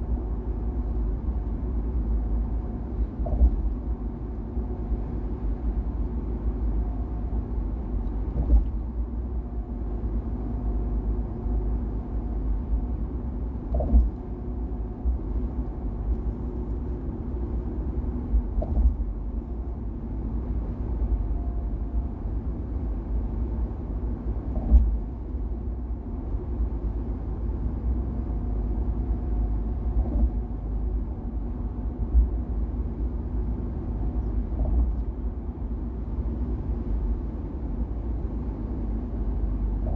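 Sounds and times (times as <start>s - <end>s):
car road rumble: 0.0s - 39.9s
thumps from road surface: 3.2s - 3.8s, 8.3s - 8.9s, 13.7s - 14.2s, 18.6s - 19.1s, 24.5s - 25.0s, 30.0s - 30.4s.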